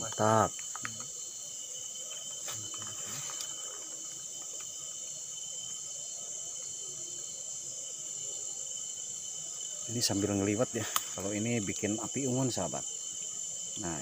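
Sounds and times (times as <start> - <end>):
crickets and insects singing: 0.0 - 14.0
faint clicks: 0.1 - 1.1, 10.8 - 11.3.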